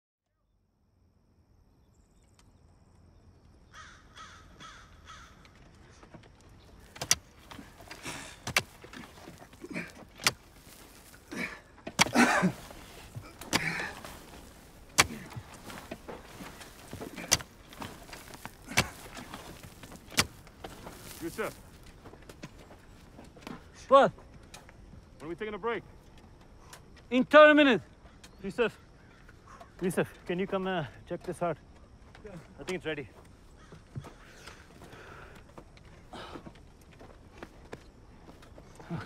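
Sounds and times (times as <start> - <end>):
crow cawing: 3.7 - 6.1, 10.6 - 21.3, 27.9 - 29.8, 33.4 - 35.4
soil and stones scraping: 5.2 - 39.0
pickaxe striking rocky dirt: 6.9 - 11.1, 11.9 - 21.5.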